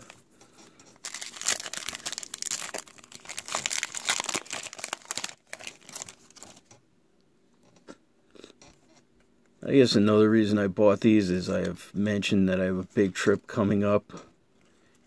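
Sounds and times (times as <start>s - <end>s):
foil wrapper tearing and crinkling: 1.0s - 6.6s.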